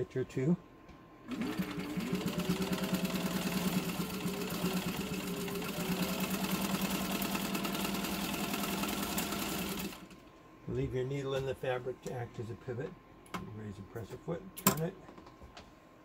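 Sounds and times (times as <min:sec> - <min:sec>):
sewing machine stitching: 0:01.3 - 0:10.2.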